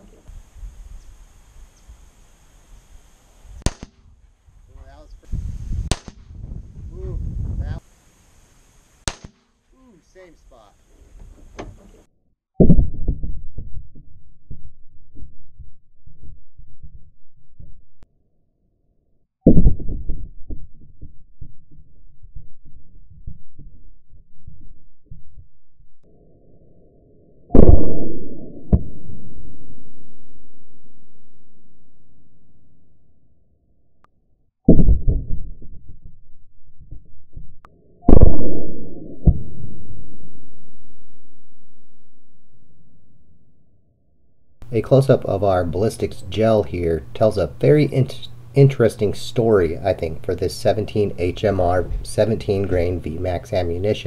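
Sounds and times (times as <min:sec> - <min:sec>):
low rumble: 0:04.0 - 0:07.8, 0:12.6 - 0:18.1, 0:19.5 - 0:32.6, 0:34.7 - 0:43.8, 0:44.6 - 0:54.0
muffled deep gunshot bang: 0:12.6 - 0:13.4, 0:27.6 - 0:28.1, 0:34.7 - 0:35.4, 0:38.1 - 0:38.6
deep boom: 0:12.6 - 0:17.8, 0:19.5 - 0:25.5, 0:27.5 - 0:29.0, 0:34.7 - 0:39.8, 0:51.1 - 0:53.4
low throbbing pulses: 0:12.6 - 0:18.0, 0:19.5 - 0:26.0, 0:27.5 - 0:29.2, 0:34.7 - 0:40.1, 0:44.6 - 0:53.8.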